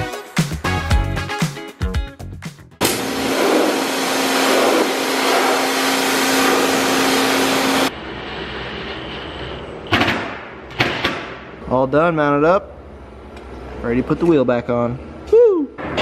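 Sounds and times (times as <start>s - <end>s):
power drill running: 2.8s - 7.9s.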